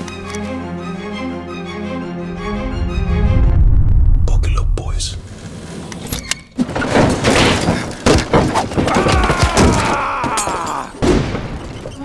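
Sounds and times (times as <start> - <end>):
falling tone: 2.0 - 5.4.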